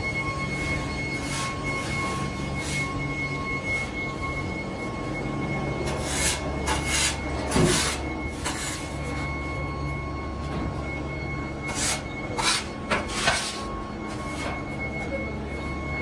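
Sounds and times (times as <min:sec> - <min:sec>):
machinery hum with faint whine: 0:00.0 - 0:16.0
shovel scraping and scooping sand: 0:06.0 - 0:09.0, 0:11.7 - 0:13.6.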